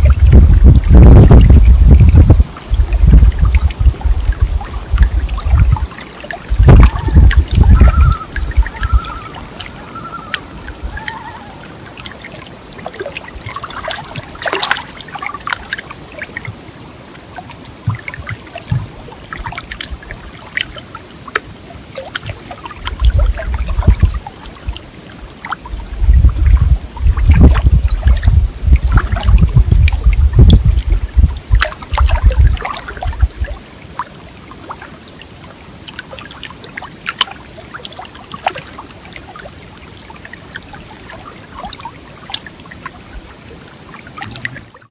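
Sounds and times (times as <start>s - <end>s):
wind buffeting microphone: 0.0s - 11.6s, 22.8s - 24.8s, 25.6s - 33.6s
small waves lapping on shore: 0.0s - 44.9s.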